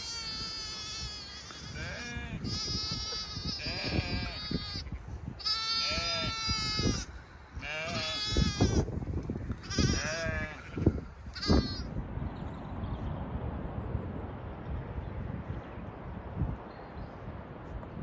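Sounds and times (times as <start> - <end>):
lamb bleating: 0.0 - 8.9, 9.6 - 11.9.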